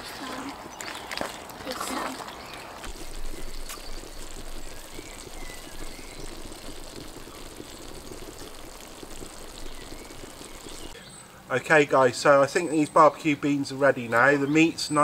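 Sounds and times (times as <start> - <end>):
stew bubbling in a pot: 1.5 - 11.0.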